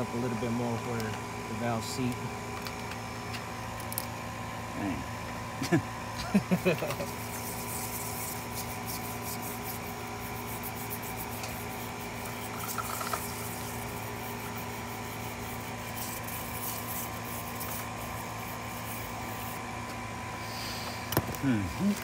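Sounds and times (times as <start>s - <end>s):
steady background hum: 0.0s - 22.0s
hand scrubbing metal: 6.8s - 19.7s.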